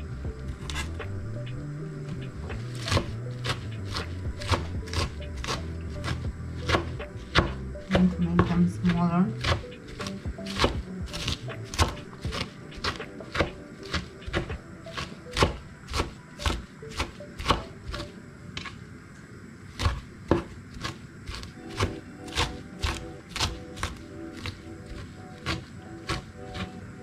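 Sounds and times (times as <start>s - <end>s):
cleaver chopping on wooden board: 2.8s - 8.6s, 9.4s - 17.7s, 19.8s - 26.7s.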